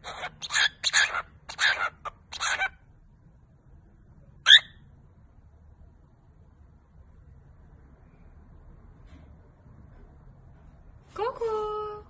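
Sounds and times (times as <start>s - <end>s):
cockatiel chattering: 0.0s - 2.8s, 4.4s - 4.8s
cockatiel chirp: 0.0s - 2.8s, 4.4s - 4.9s.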